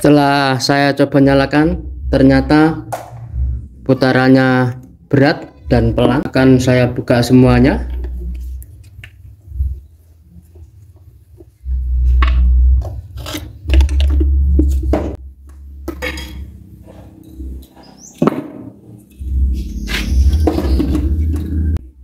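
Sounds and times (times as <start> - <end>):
heavy low thumps: 1.4 - 3.9
metal tool knocking and scraping: 15.8 - 16.5.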